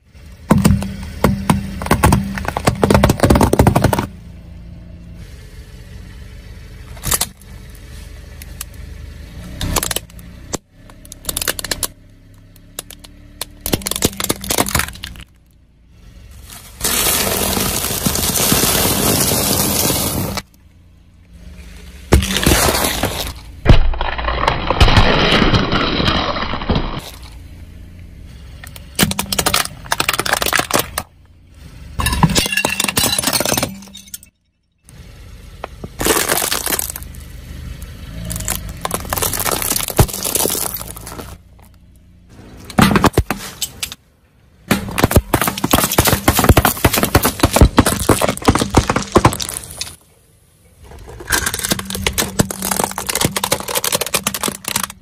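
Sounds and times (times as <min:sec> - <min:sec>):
tyre crushing objects: 0:00.4 - 0:04.2, 0:12.8 - 0:15.3, 0:16.8 - 0:20.5, 0:22.1 - 0:27.3, 0:29.0 - 0:31.1, 0:35.7 - 0:37.2, 0:38.2 - 0:41.7, 0:42.6 - 0:44.0, 0:44.7 - 0:50.0, 0:50.9 - 0:55.0.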